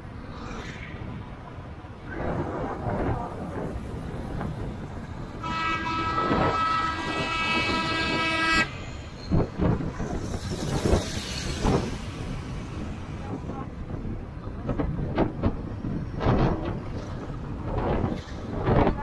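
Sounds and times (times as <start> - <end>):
road noise: 0.0 - 19.0
vehicle horn blaring: 5.4 - 8.8
wind thumps on microphone: 9.3 - 19.0.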